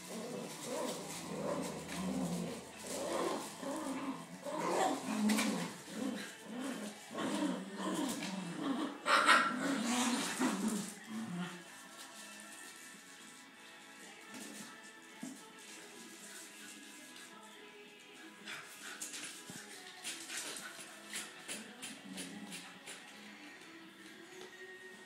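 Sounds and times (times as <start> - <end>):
puppies growling and yipping: 0.0 - 11.7.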